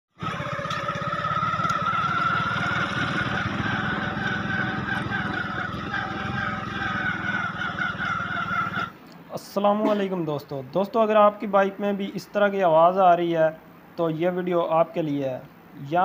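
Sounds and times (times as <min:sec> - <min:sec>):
motorcycle engine running: 0:00.1 - 0:08.9
wavering whine: 0:00.2 - 0:08.9.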